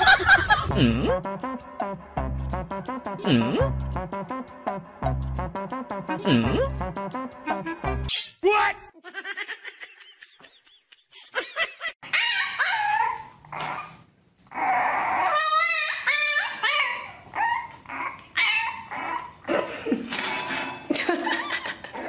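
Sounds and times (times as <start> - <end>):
puppy yapping: 12.0 - 19.4
puppy whining: 12.0 - 19.6.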